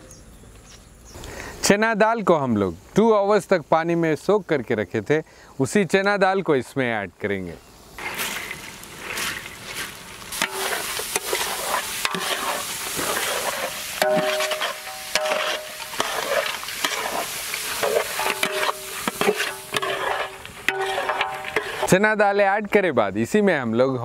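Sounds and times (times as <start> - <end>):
hiss of frying: 7.9 - 22.0
lentils poured into pot: 8.0 - 21.9
spoon scraping metal pot: 10.4 - 21.9.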